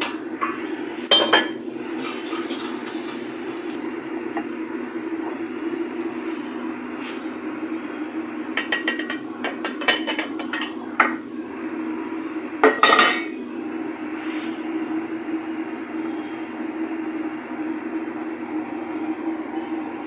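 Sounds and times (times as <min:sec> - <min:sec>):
steady low hum: 0:00.0 - 0:20.0
pan and pot clinking: 0:08.6 - 0:11.2, 0:12.6 - 0:13.3.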